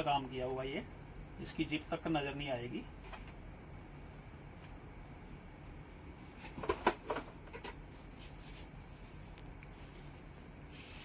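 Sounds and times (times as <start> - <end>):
low room hum: 0.0 - 11.0
clothes and hangers rustling: 6.2 - 11.0.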